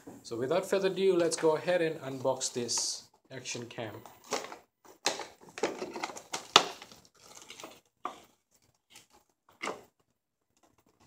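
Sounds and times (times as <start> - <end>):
packaging rustling and crinkling: 4.2 - 11.0.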